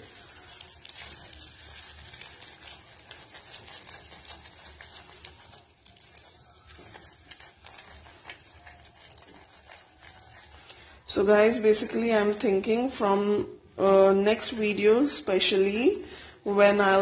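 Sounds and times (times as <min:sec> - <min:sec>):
sugar bubbling and crackling: 0:00.0 - 0:13.0
spatula stirring in saucepan: 0:00.0 - 0:17.0.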